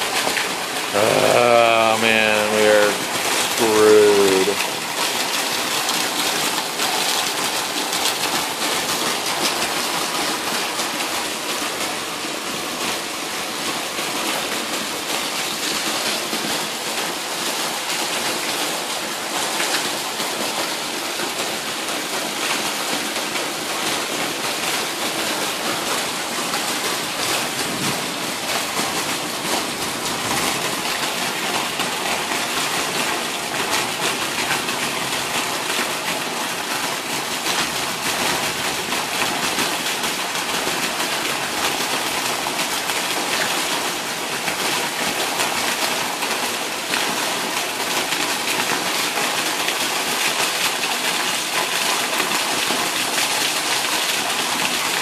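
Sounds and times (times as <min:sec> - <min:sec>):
heavy rain pouring: 0:00.0 - 0:55.0.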